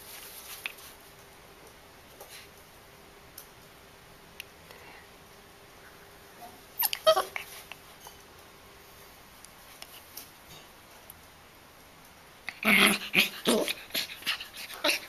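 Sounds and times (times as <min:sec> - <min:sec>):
puppy yelping: 0:06.8 - 0:07.6, 0:12.5 - 0:15.0.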